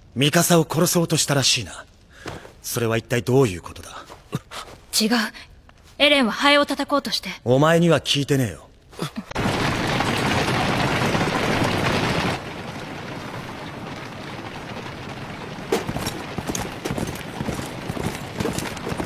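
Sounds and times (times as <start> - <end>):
rush of galloping noise: 9.4 - 19.0
hoofbeats clattering: 15.6 - 19.0.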